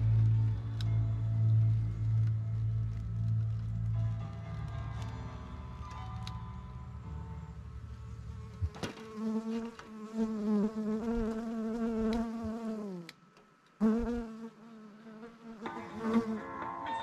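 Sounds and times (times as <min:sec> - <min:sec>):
bee buzzing: 0:08.5 - 0:13.1, 0:13.8 - 0:16.4.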